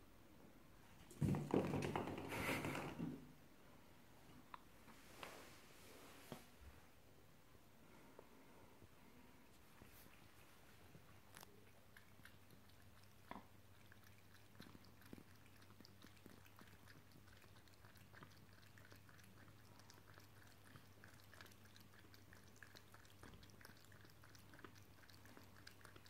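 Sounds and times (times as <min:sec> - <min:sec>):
cat lapping water: 0:09.1 - 0:26.0.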